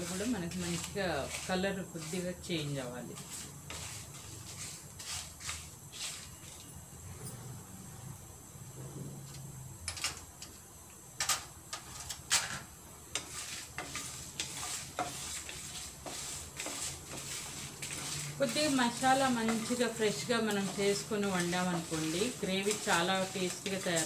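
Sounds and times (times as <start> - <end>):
spatula scraping spices in pan: 0.0 - 6.7, 11.7 - 24.0
light sizzle: 0.0 - 24.0.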